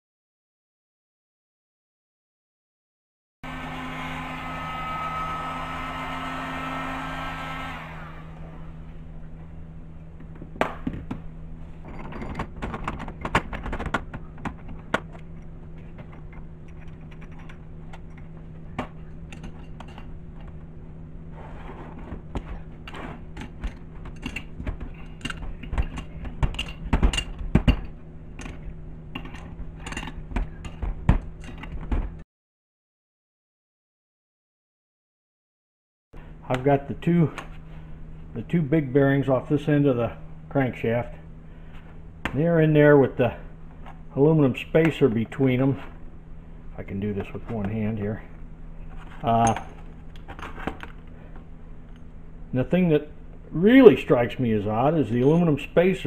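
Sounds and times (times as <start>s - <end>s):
heat gun blowing: 3.5s - 8.7s
low steady hum: 3.5s - 32.2s, 36.2s - 56.0s.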